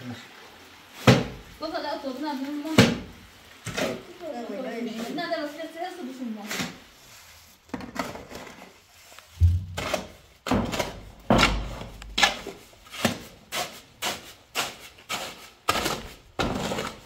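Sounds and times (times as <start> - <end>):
shovel scraping cement mix: 6.4 - 17.0
heavy thump in wheelbarrow: 9.4 - 11.9.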